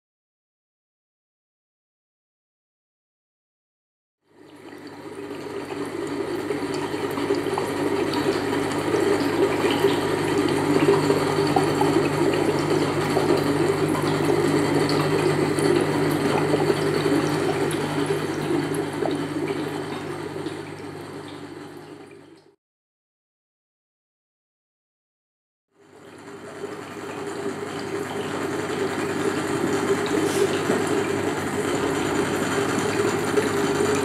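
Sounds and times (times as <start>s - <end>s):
rushing bubbling water: 4.4s - 22.4s, 26.2s - 34.0s.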